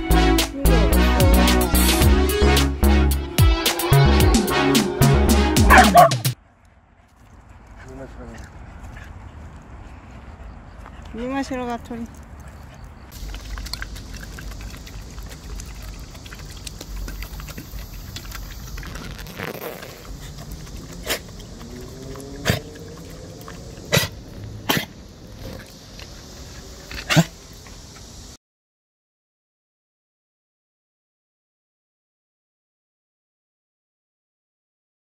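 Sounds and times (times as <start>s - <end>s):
dog drinking water: 5.7s - 6.3s, 7.0s - 28.1s.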